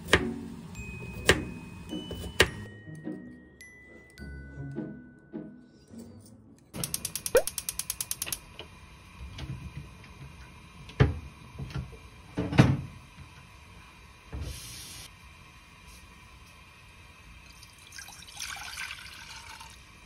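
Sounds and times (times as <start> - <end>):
gas burner igniter clicking: 6.8 - 8.7.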